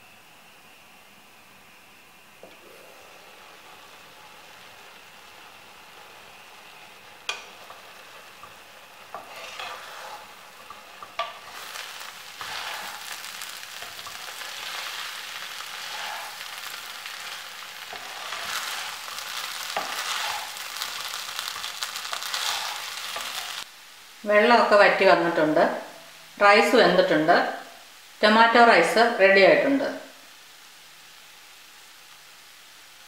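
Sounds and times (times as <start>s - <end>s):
light sizzle: 0.0s - 33.0s
spatula scraping rice in pan: 8.4s - 23.7s.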